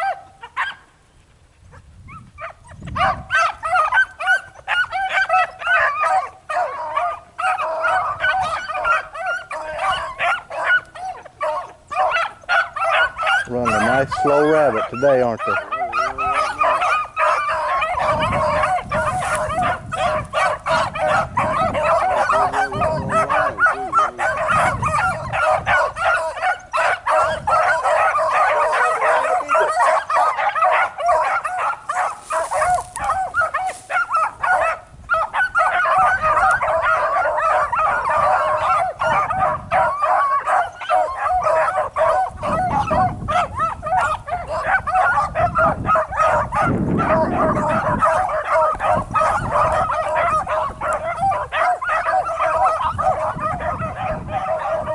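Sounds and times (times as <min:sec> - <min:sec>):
beagles baying: 0:00.0 - 0:01.2, 0:02.1 - 0:54.9.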